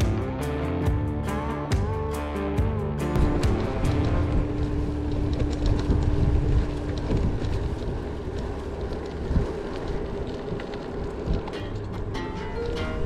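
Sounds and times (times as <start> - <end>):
road noise: 0.0 - 13.0
wind buffeting microphone: 3.0 - 13.0.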